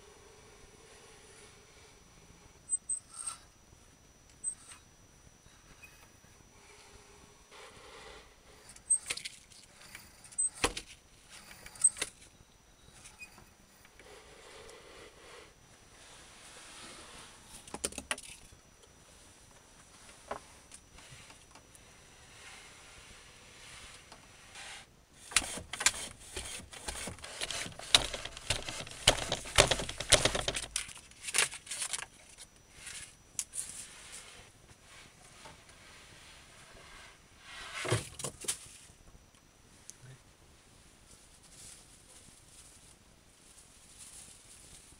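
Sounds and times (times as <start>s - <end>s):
wooden mechanism clicks and knocks: 25.3s - 31.0s
soft rustle: 30.9s - 39.1s, 39.7s - 44.9s.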